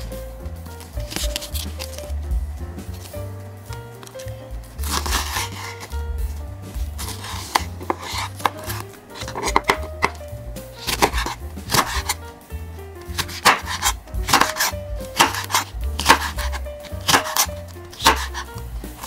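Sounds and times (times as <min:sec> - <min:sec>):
background music: 0:00.0 - 0:19.0
knife chopping on wooden board: 0:07.0 - 0:10.2, 0:10.9 - 0:12.2, 0:13.2 - 0:18.4.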